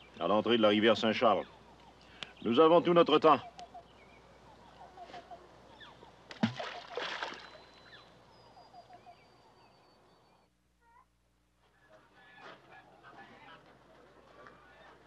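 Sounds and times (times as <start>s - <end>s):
object splashing into river: 6.3s - 7.7s.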